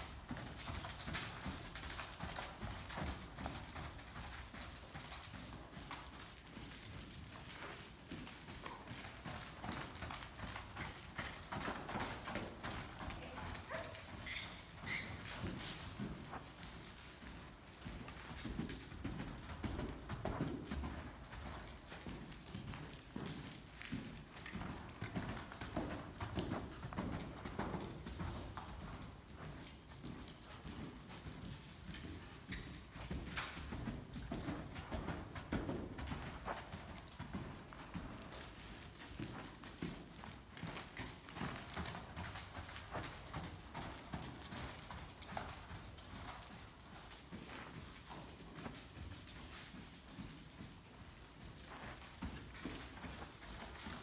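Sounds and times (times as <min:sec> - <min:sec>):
hoofbeats on sand: 0:00.0 - 0:54.0.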